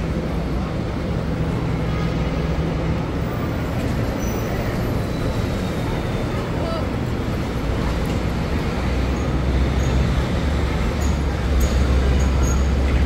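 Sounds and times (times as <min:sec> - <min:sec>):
city street traffic: 0:00.0 - 0:13.0
heavy vehicle engine rumbling: 0:00.0 - 0:13.0.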